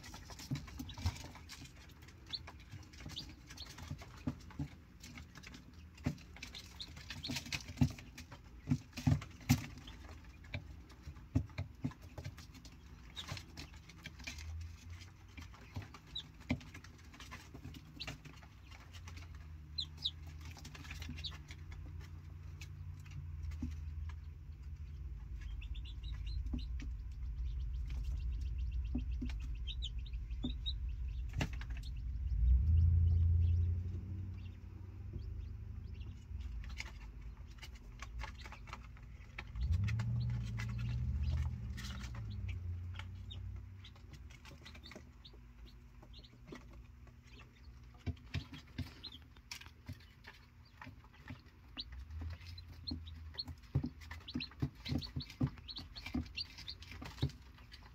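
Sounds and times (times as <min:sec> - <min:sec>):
chicks peeping: 0:00.0 - 0:57.9
low rumble: 0:19.1 - 0:46.4.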